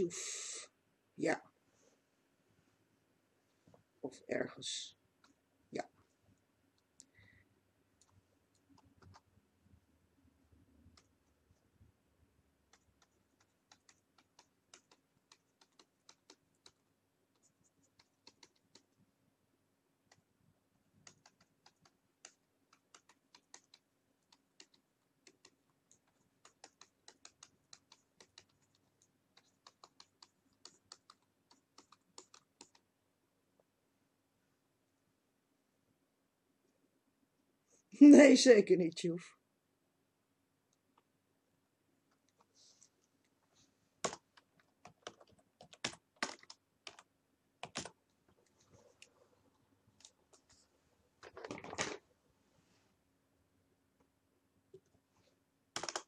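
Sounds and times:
faint steady hum: 0.0 - 56.0
computer mouse clicks: 12.7 - 16.8, 17.4 - 18.9, 21.0 - 32.9, 55.8 - 56.0.

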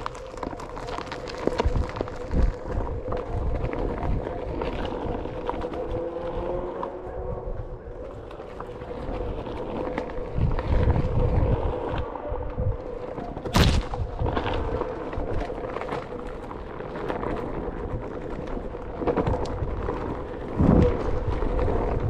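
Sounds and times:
tyre rumble on dirt: 0.0 - 6.8, 12.9 - 22.0
wind on microphone: 0.0 - 22.0.

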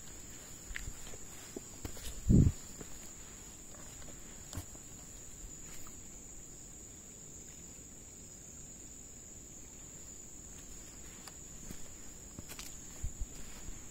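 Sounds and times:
insects droning: 0.0 - 13.9.

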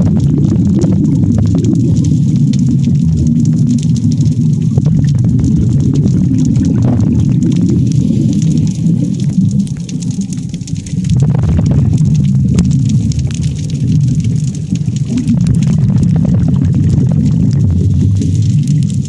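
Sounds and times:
faint underwater clicks and crackles: 0.0 - 19.0
underwater rumble of moving water: 0.0 - 19.0.

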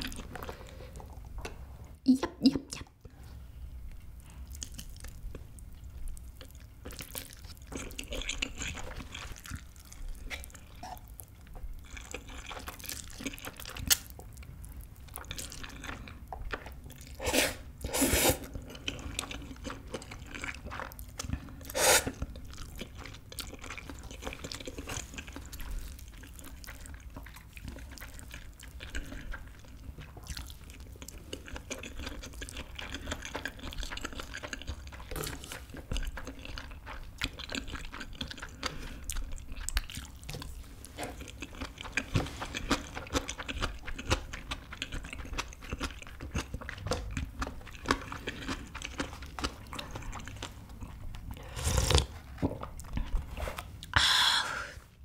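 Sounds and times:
chewing noodles: 3.9 - 54.0
slurping noodles: 17.1 - 18.6, 21.6 - 22.2, 51.4 - 52.2.

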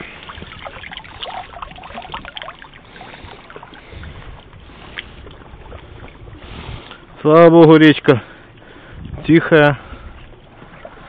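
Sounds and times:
wind rumble on microphone: 0.0 - 2.4, 3.1 - 7.2, 8.7 - 11.0
shallow water splashing: 0.0 - 11.0.

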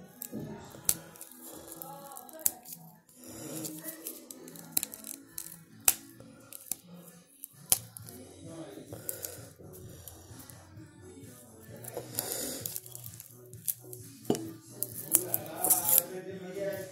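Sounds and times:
background music: 0.0 - 16.9
plastic wrapper crinkling: 0.1 - 2.9, 3.6 - 8.2, 11.9 - 16.1.

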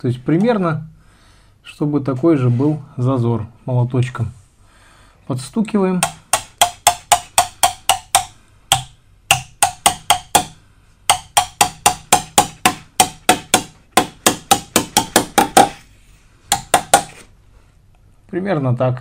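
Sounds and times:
hammer tapping metal: 6.0 - 15.8, 16.5 - 17.2.

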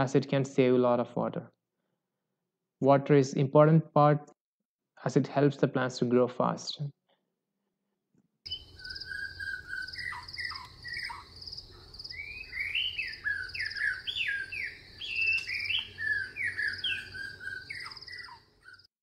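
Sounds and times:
birds singing: 8.5 - 18.9.

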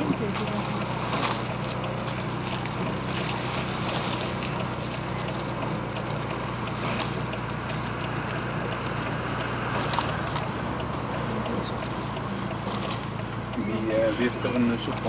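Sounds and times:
motorboat engine drone: 0.0 - 15.0
faint ticks: 4.3 - 15.0.

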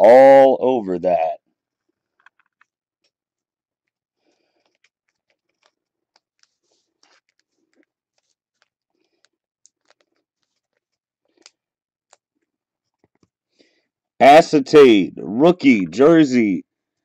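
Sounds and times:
trading cards rustling and clicking: 1.8 - 3.2, 3.8 - 13.4.

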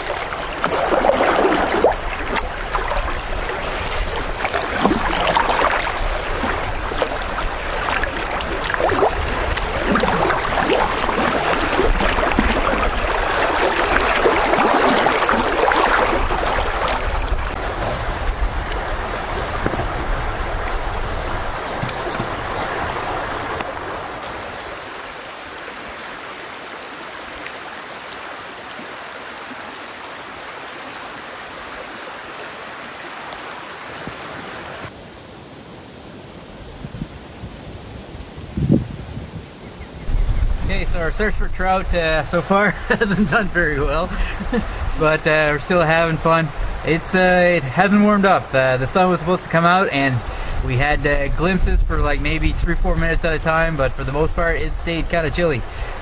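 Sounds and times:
wind buffeting microphone: 0.0 - 26.0, 36.1 - 47.6, 50.0 - 56.0
water splashing and rushing: 0.0 - 39.3, 40.0 - 56.0.

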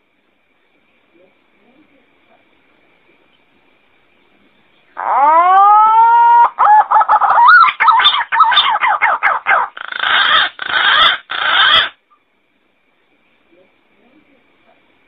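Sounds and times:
pigeon whistling call: 5.2 - 12.0.

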